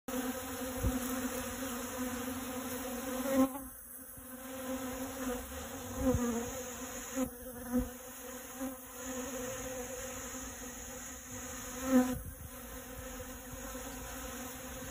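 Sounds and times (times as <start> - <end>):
bees buzzing: 0.1 - 14.9.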